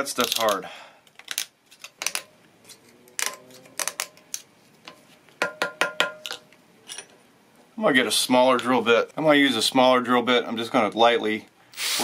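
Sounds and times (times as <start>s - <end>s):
metal tube ringing: 5.4s - 7.1s.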